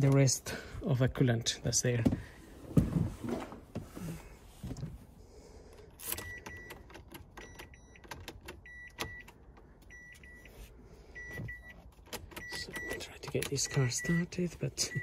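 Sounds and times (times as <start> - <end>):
car warning chime beeping: 6.2 - 11.8, 12.4 - 15.0.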